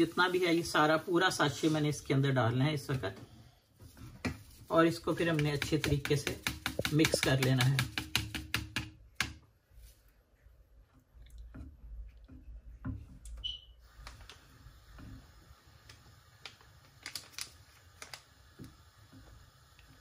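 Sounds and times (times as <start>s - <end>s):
spatula stirring in a saucepan: 0.0s - 9.1s, 10.7s - 13.3s, 18.3s - 20.0s
spatula tapping and scraping pan: 4.1s - 9.4s.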